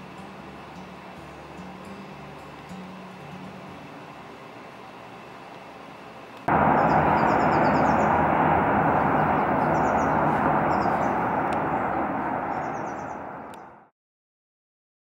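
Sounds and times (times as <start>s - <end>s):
outdoor rushing ambience: 6.5s - 13.9s
faint bird chirps: 12.5s - 13.7s.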